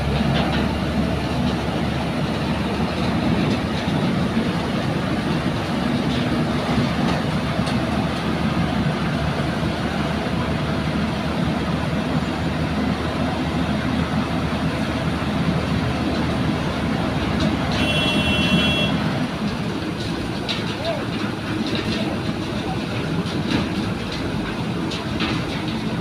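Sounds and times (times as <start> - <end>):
excavator diesel engine droning: 0.0 - 26.0.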